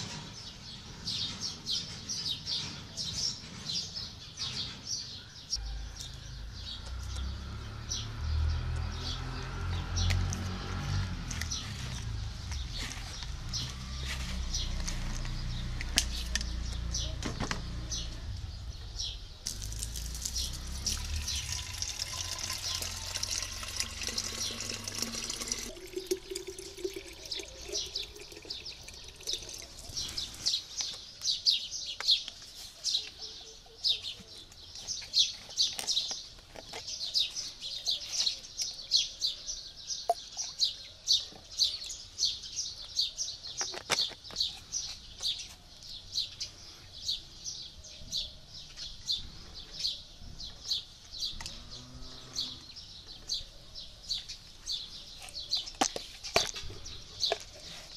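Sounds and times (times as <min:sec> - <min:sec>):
birds chirping: 0:00.0 - 0:57.9
liquid pouring into plastic bottle: 0:19.5 - 0:30.5.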